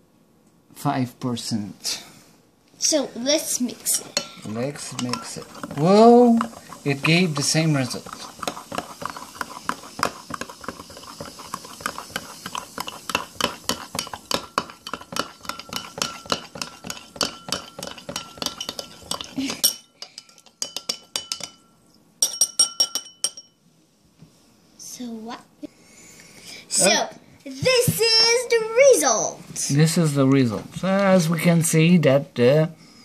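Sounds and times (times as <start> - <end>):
metal spoon clinking in wine glass: 4.2 - 5.6, 14.0 - 23.6
spoon tapping on glass: 4.2 - 5.8, 8.4 - 23.6.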